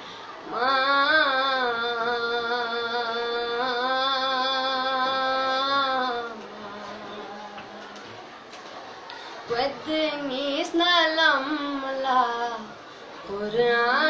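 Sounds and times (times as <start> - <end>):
breath: 0.0 - 0.4, 9.1 - 9.5
boy singing devotional song: 0.0 - 8.2, 9.4 - 14.0.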